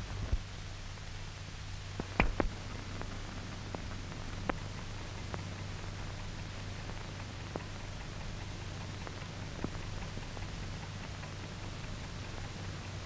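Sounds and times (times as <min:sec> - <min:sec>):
film hiss: 0:00.0 - 0:13.0
clicks and pops: 0:02.0 - 0:04.6
low hum: 0:02.0 - 0:08.0.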